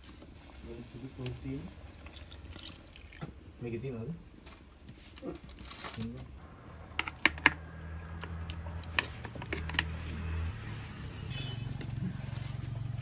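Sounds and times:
wood fire crackling: 0.0s - 13.0s.

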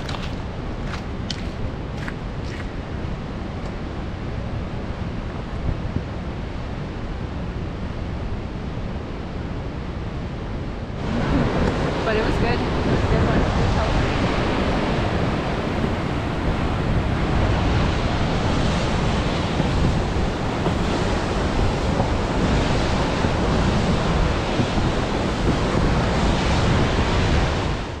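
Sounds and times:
creek rushing over boulders: 0.0s - 3.6s, 11.0s - 28.0s
wind buffeting microphone: 0.0s - 28.0s.

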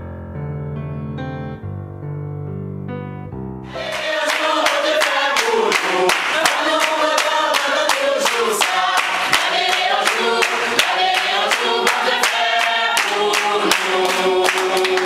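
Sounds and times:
choir singing: 3.7s - 15.0s.

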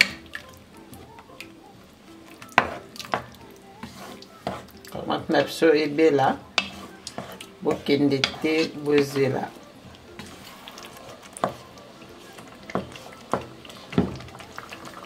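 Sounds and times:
spatula stirring thick sauce: 0.0s - 15.0s
spatula knocking against pot: 12.7s - 14.3s.

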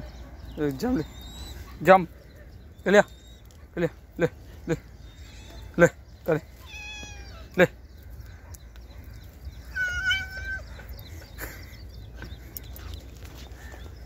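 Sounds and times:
cat meowing: 5.1s - 5.8s, 6.6s - 7.5s, 9.7s - 10.7s.

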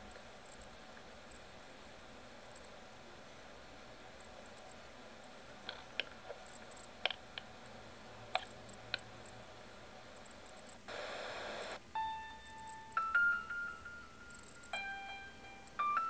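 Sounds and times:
static hiss burst: 8.3s - 11.8s.

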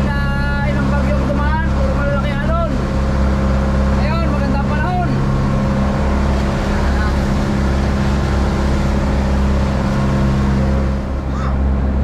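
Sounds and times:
boat engine droning: 0.0s - 12.0s
hiss of wind and water: 0.0s - 12.0s.

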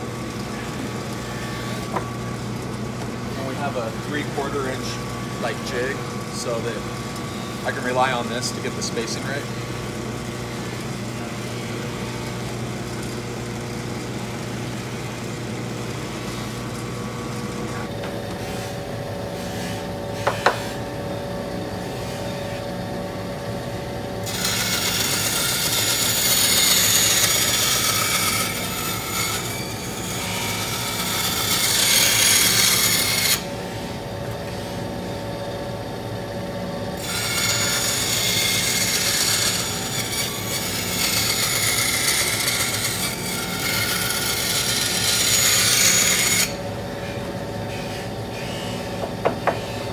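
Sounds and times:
saw motor humming: 0.0s - 35.0s, 36.9s - 49.9s
saw cutting plastic: 3.4s - 6.9s, 24.2s - 33.8s, 37.0s - 49.9s.

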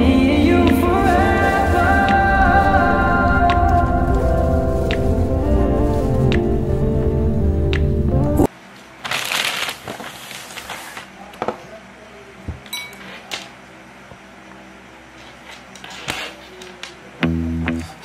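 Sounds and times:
music: 0.0s - 8.5s, 17.2s - 18.0s.

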